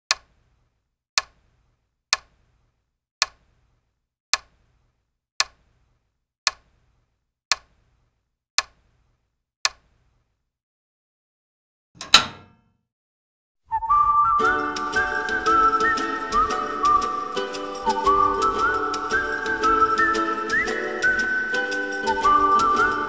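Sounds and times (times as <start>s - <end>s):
clock-like ticks: 5.4s - 5.6s.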